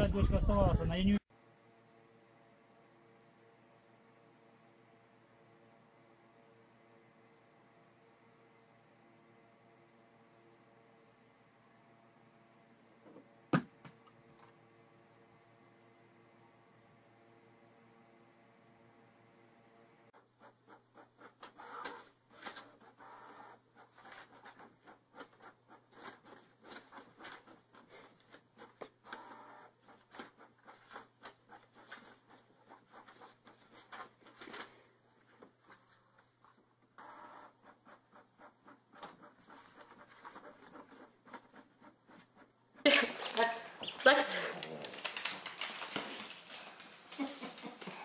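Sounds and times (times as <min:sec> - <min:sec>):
cat pawing rustling paper: 0:44.3 - 0:47.9.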